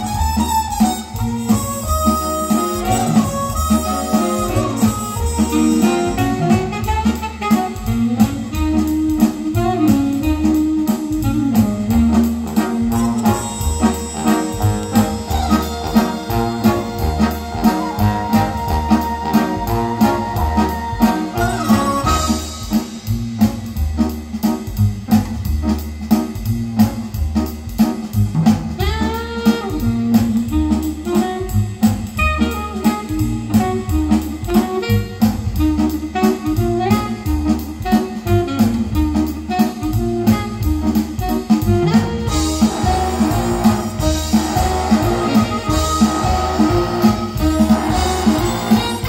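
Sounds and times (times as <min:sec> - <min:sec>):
pitch-bending lead line: 0:00.0 - 0:24.1, 0:40.8 - 0:49.0
instrumental band music: 0:00.0 - 0:49.0
steady drum beat: 0:00.0 - 0:49.0
strong bass line: 0:00.0 - 0:49.0.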